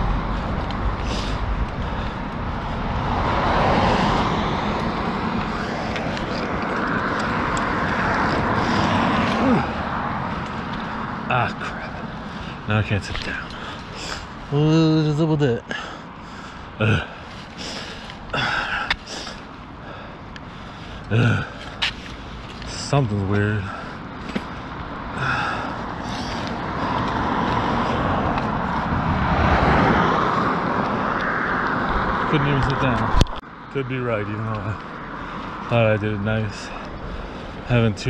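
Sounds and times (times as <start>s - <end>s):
cars passing: 0.0s - 38.0s
wind and road rush: 0.0s - 38.0s
person breathing out hard: 0.2s - 4.7s, 7.9s - 11.2s, 15.7s - 22.3s, 23.6s - 28.3s.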